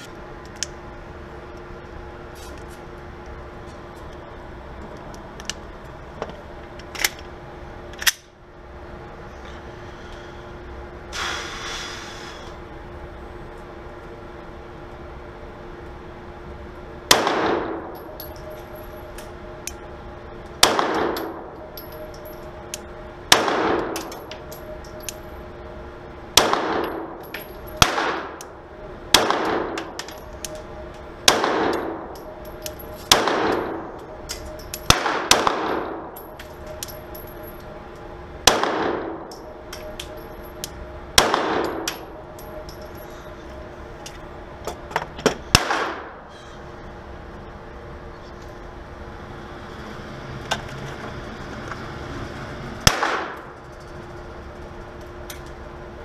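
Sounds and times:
pistol shots echoing indoors: 0:17.1 - 0:18.0, 0:20.6 - 0:21.4, 0:23.3 - 0:24.2, 0:26.4 - 0:27.1, 0:27.8 - 0:28.4, 0:29.1 - 0:29.9, 0:31.2 - 0:33.9, 0:34.8 - 0:36.3, 0:38.4 - 0:40.2, 0:41.2 - 0:42.1, 0:45.6 - 0:46.2, 0:52.8 - 0:53.5.

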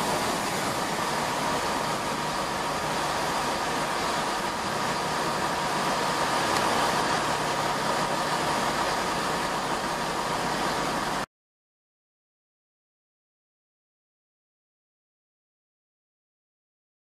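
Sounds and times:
diesel train engines running: 0:00.0 - 0:11.3
steady high whine: 0:00.0 - 0:11.3.

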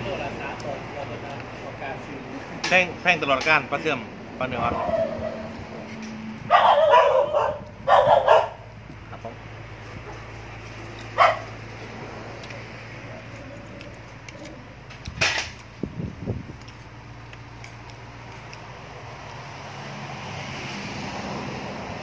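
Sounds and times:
dog barking: 0:04.7 - 0:05.5, 0:06.5 - 0:08.6, 0:11.2 - 0:11.5.

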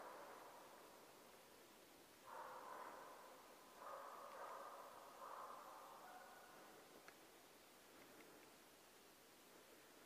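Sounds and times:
distant hound baying: 0:02.3 - 0:06.8.

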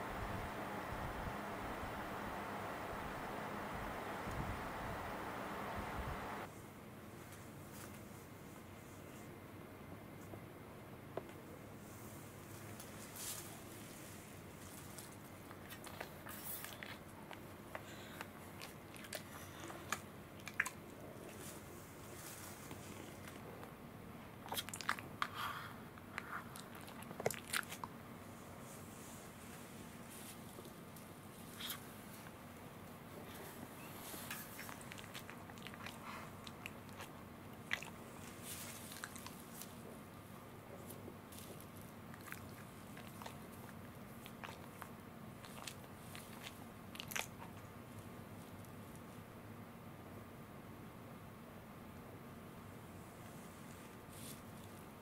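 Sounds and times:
electric fan humming: 0:00.0 - 0:06.5
steady low hiss: 0:00.0 - 0:16.2.

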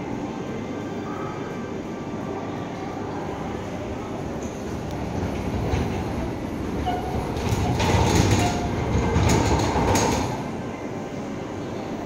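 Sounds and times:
rattling knocks: 0:07.0 - 0:10.5.

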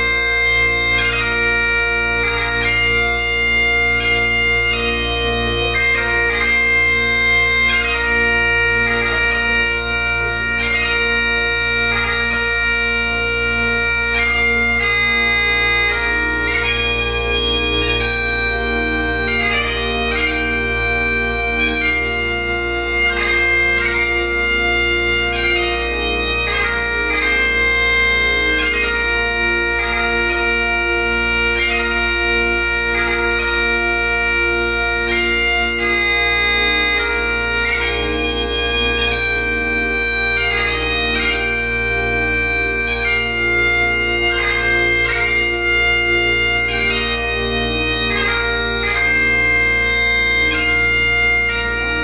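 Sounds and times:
bagpipes playing slow melody: 0:00.0 - 0:52.0.

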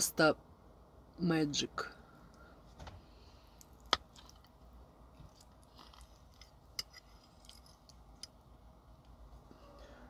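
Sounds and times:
person chewing food: 0:03.4 - 0:08.6.

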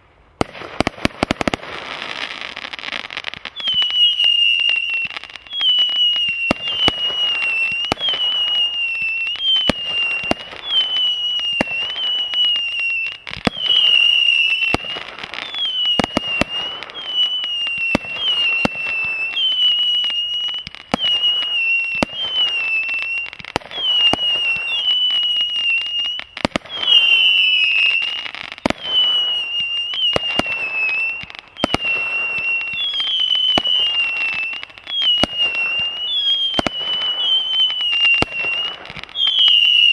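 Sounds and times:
firework whistles: 0:00.0 - 0:39.9
firework pops: 0:13.3 - 0:14.0, 0:14.7 - 0:25.3, 0:26.1 - 0:39.9.

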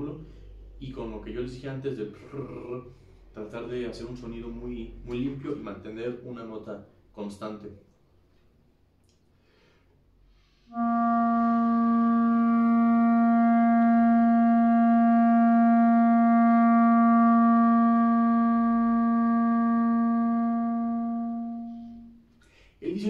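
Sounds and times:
clarinet long held note: 0:10.5 - 0:22.3.

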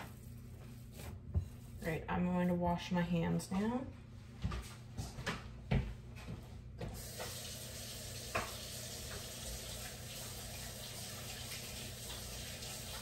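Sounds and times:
water running into a sink: 0:07.0 - 0:13.0.

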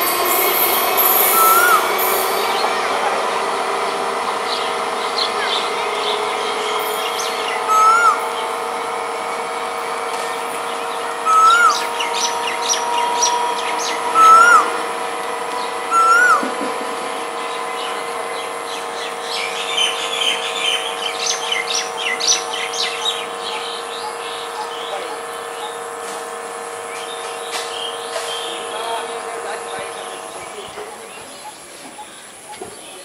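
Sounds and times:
steady hum: 0:00.0 - 0:33.0
bird whistled call: 0:01.0 - 0:02.7, 0:05.2 - 0:08.5, 0:10.8 - 0:14.8, 0:15.6 - 0:16.5
high bird chirps: 0:01.0 - 0:02.7, 0:04.5 - 0:08.6, 0:10.3 - 0:14.8, 0:15.6 - 0:16.4, 0:17.5 - 0:24.9.

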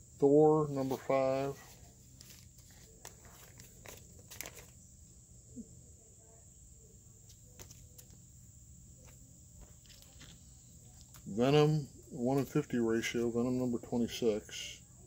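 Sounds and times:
plastic bag crinkling: 0:00.9 - 0:04.8.

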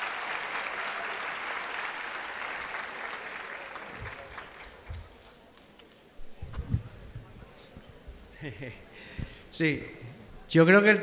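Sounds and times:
applause: 0:00.0 - 0:05.7.

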